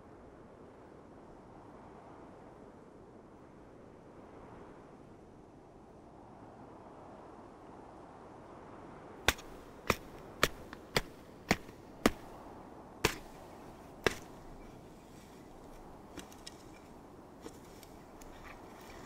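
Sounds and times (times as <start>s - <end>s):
spade chopping into soil: 9.3s - 19.0s.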